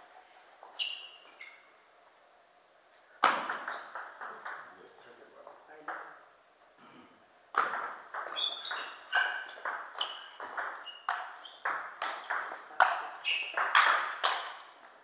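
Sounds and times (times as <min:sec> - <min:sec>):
short high squeaks: 0:00.8 - 0:01.8, 0:08.3 - 0:11.7, 0:13.2 - 0:13.7.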